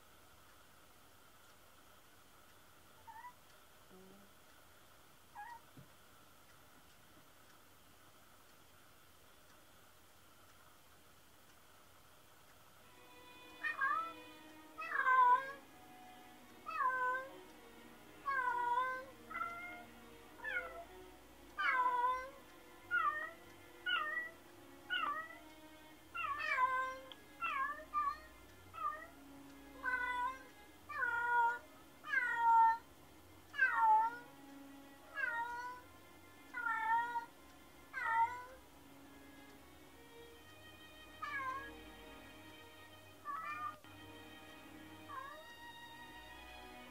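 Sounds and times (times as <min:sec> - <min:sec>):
cat meowing: 0:03.0 - 0:03.4, 0:05.4 - 0:05.7, 0:13.6 - 0:14.2, 0:14.8 - 0:15.6, 0:16.7 - 0:17.3, 0:18.2 - 0:19.8, 0:20.4 - 0:20.8, 0:21.6 - 0:25.4, 0:26.2 - 0:29.1, 0:29.8 - 0:32.8, 0:33.5 - 0:34.2, 0:35.1 - 0:35.8, 0:36.5 - 0:37.3, 0:37.9 - 0:38.6, 0:41.2 - 0:41.7, 0:43.2 - 0:43.8, 0:45.1 - 0:45.5.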